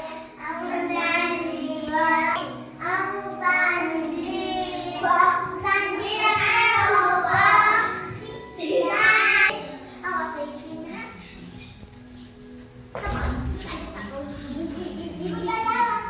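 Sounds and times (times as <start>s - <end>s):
girls singing together: 0.0s - 9.8s.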